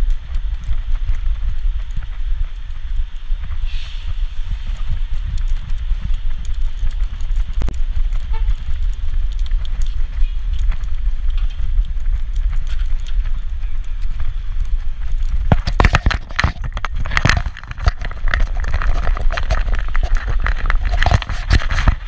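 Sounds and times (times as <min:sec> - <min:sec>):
harness fittings jingling: 0:00.0 - 0:03.1, 0:04.3 - 0:22.0
low wind rumble: 0:00.0 - 0:22.0
knocks and rattles: 0:04.8 - 0:22.0.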